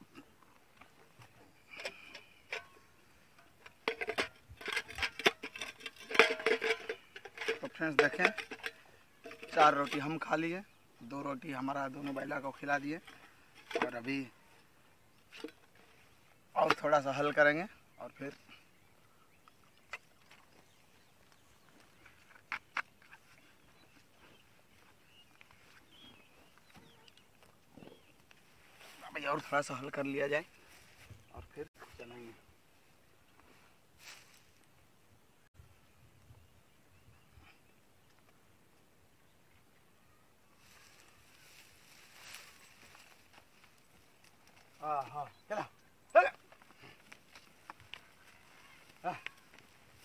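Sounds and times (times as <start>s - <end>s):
steel containers clinking: 1.6s - 10.6s, 11.8s - 14.3s.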